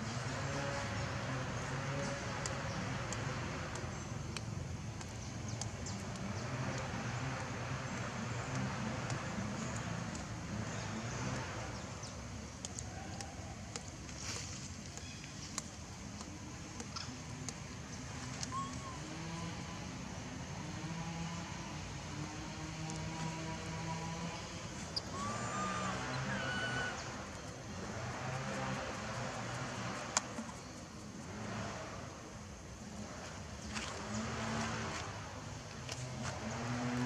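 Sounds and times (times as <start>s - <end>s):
high ticks: 2.3s - 10.4s, 14.8s - 18.7s, 28.4s - 31.2s.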